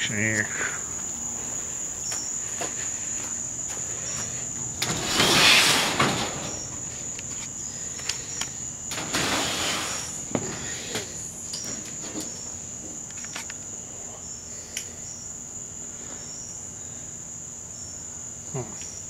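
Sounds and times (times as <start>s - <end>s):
crickets trilling: 0.0s - 19.0s
shed door scraping open: 2.1s - 13.1s.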